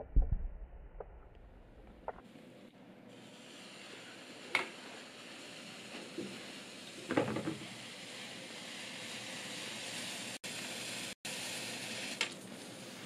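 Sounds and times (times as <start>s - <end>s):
sharp crackle: 0.0s - 2.2s
paper smouldering hiss: 3.1s - 13.0s.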